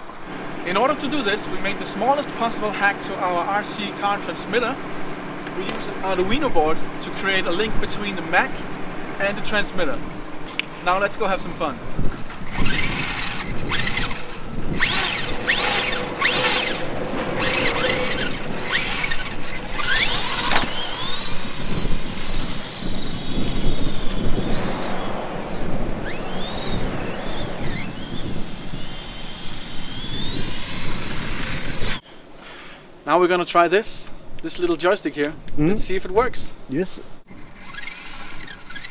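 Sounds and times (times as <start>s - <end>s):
toy car motor whine: 12.1s - 32.0s, 37.3s - 38.9s.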